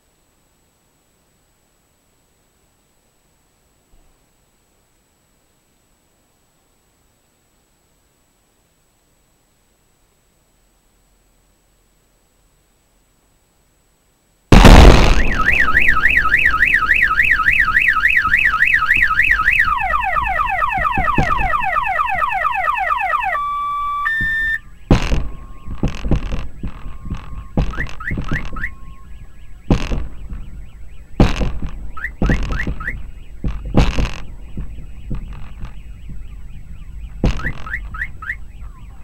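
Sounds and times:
loud boom: 14.5 - 21.8
sharp bangs: 14.5 - 22.6, 24.1 - 38.4
car alarms: 14.7 - 39.0.

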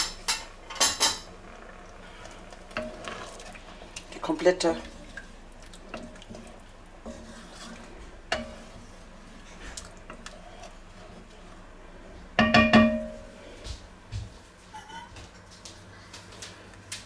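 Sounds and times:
spoon stirring broth: 0.0 - 13.2
spoon knocking against pot: 12.4 - 13.2.

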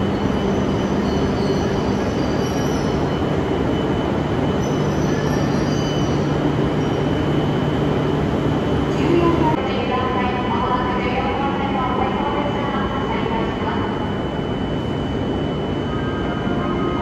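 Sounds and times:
faint high wheel squeals: 0.0 - 3.8, 4.4 - 7.4
train rumble and motor hum: 0.0 - 14.0.

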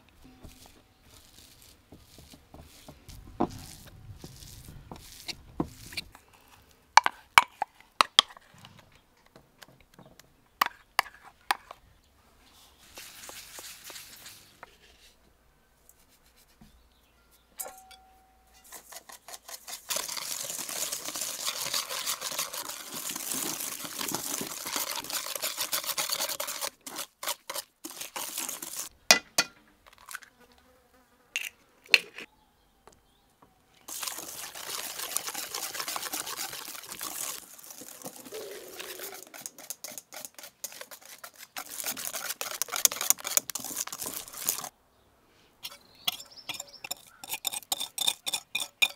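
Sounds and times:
wooden spoon scraping bowl: 0.0 - 8.7, 12.7 - 15.2, 18.6 - 28.9, 33.9 - 44.7
whisk beating mixture: 19.0 - 28.9, 33.9 - 44.7.

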